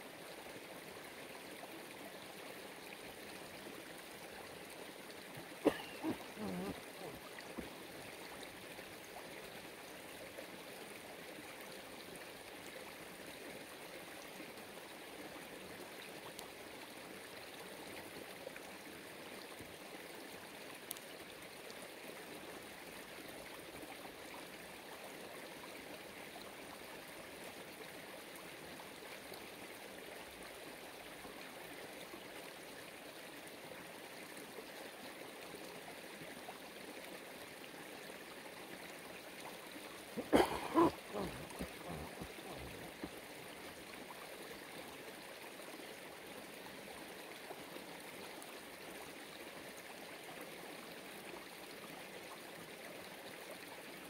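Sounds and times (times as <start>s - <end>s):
running water: 0.0s - 50.3s.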